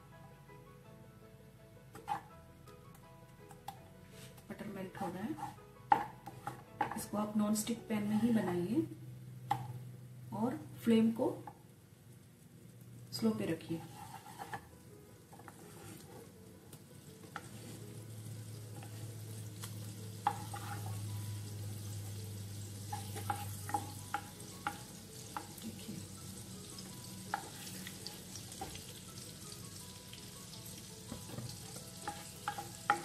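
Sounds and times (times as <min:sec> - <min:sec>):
wooden spatula scraping a pan: 0:02.0 - 0:02.3, 0:05.0 - 0:07.1, 0:08.0 - 0:08.7, 0:13.6 - 0:16.4, 0:17.2 - 0:22.2, 0:22.8 - 0:25.6, 0:27.2 - 0:29.0, 0:31.1 - 0:33.0
butter sizzling in a pan: 0:11.7 - 0:33.0.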